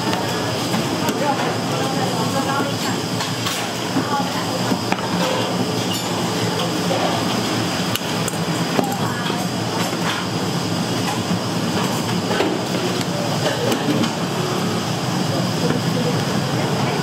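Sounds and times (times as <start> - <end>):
faint voices: 12.3 - 17.0.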